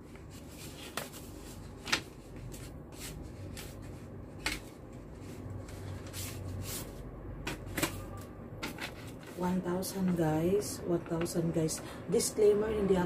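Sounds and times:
paper envelope rustling: 0:00.0 - 0:06.8.

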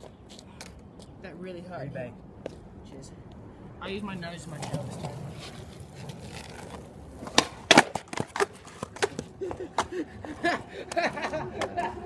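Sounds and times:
skateboard wheels rolling on asphalt: 0:03.8 - 0:12.0
skateboard deck clacking: 0:04.5 - 0:09.9.

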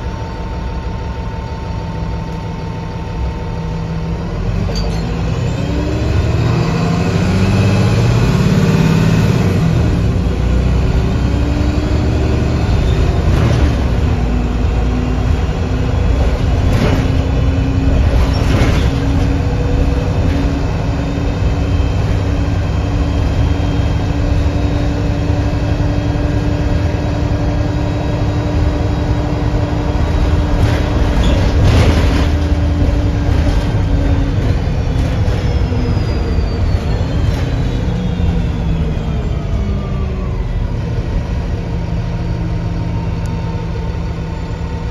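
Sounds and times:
bus drivetrain drone with whine: 0:00.0 - 0:44.9
road noise: 0:00.0 - 0:44.9
knocks and rattles: 0:16.1 - 0:20.6, 0:30.1 - 0:35.7.

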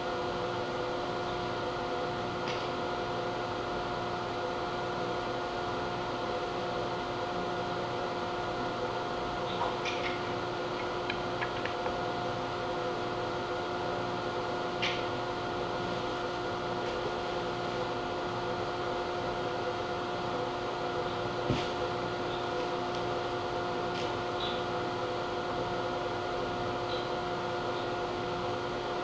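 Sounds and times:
steady mechanical hum: 0:00.0 - 0:29.0.

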